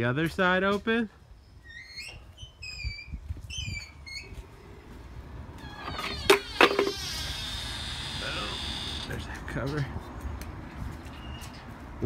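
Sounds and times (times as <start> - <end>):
metal gate squealing and creaking: 1.5 - 4.4, 5.6 - 9.3.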